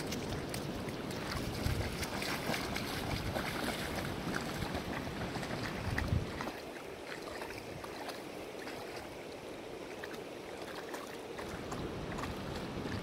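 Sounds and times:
dogs splashing through water: 0.0 - 13.0
wind buffeting microphone: 1.1 - 6.6.

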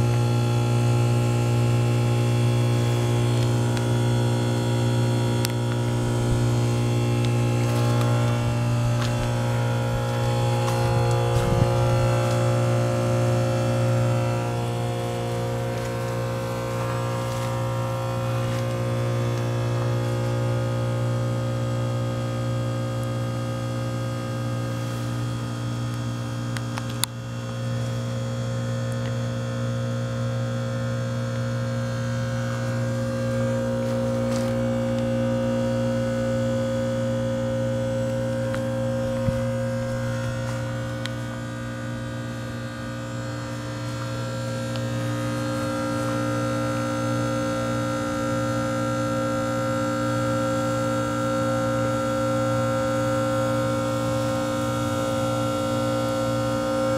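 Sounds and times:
heat pump humming: 0.0 - 56.9
heat pump clicks: 4.8 - 20.5.

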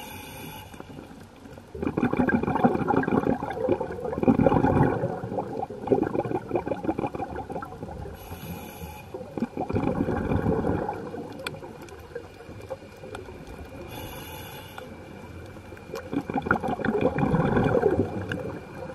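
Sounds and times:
hissing regulator inhale: 0.0 - 1.2, 8.1 - 9.4, 13.8 - 15.4
exhaled bubbles rushing: 1.6 - 8.2, 9.1 - 13.8, 15.8 - 18.9.

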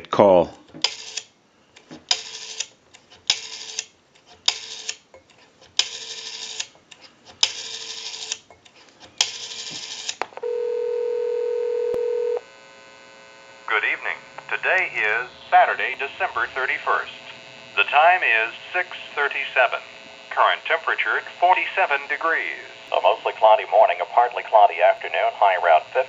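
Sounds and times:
recorded announcement voice: 0.0 - 0.5, 13.7 - 26.0
rotary dial whirring: 0.8 - 5.1, 5.7 - 16.0
telephone ringback tone: 9.4 - 12.4.

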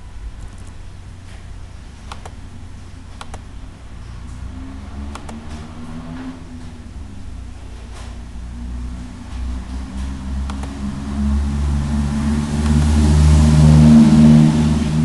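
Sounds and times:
steady low hum: 0.0 - 15.0
computer mouse clicking: 2.1 - 2.4, 3.2 - 3.5, 5.1 - 5.7, 10.4 - 10.8.

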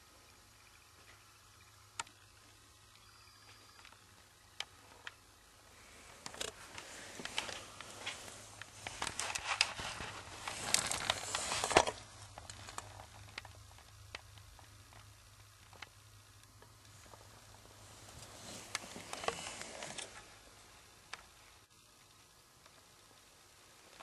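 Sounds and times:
low steady hum: 0.0 - 24.0
rustling and clicking handling noise: 5.9 - 24.0.

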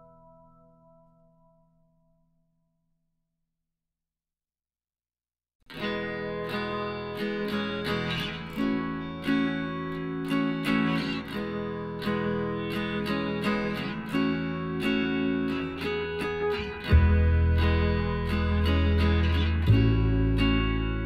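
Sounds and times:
strummed acoustic guitar: 5.7 - 21.0.

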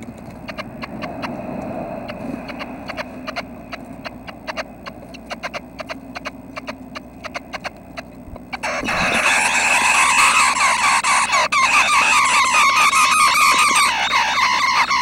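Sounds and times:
nestlings begging calls: 0.3 - 15.0
nestlings tapping and pecking: 3.7 - 15.0.

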